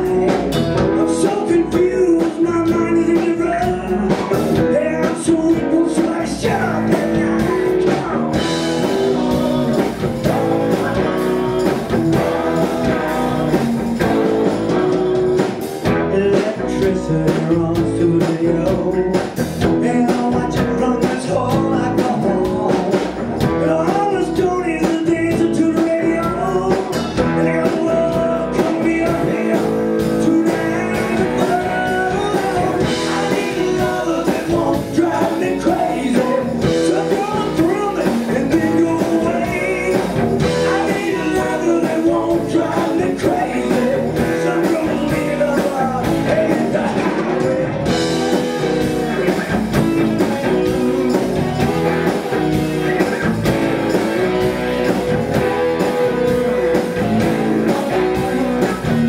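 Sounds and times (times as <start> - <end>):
person singing: 0.0 - 14.4, 15.8 - 53.2
bass guitar: 0.0 - 59.0
drum kit: 0.0 - 59.0
electric guitars: 0.0 - 59.0.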